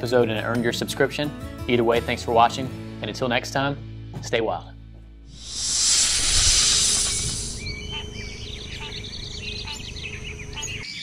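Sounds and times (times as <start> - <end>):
loud hissing whoosh: 5.3 - 7.8
birds chirping and calling: 5.6 - 11.0.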